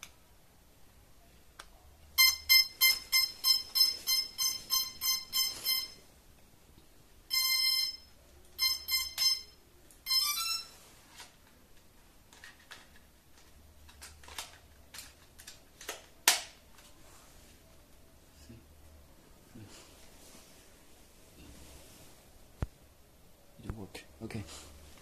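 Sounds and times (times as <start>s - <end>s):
electronic beeps: 2.2s - 6.0s.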